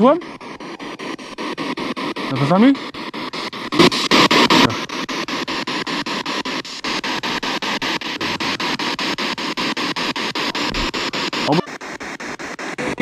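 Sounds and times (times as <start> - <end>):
pulsing radio static: 0.0 - 13.0
snatch of radio voice: 3.7 - 5.0, 7.9 - 9.0, 10.5 - 11.8.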